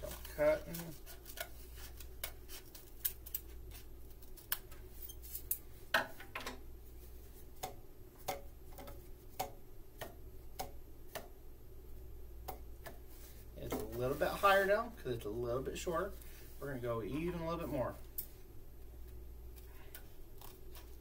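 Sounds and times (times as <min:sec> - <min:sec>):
hollow cardboard tubes tapped: 0:07.6 - 0:11.4.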